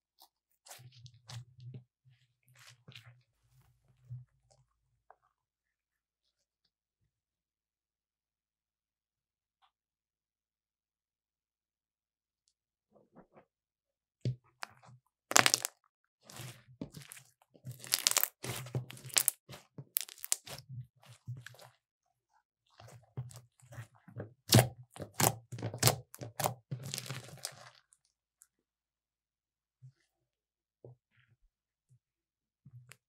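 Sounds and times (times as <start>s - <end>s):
slime crackling and popping: 15.3s - 15.7s, 17.7s - 19.4s, 20.0s - 20.6s, 24.5s - 27.7s.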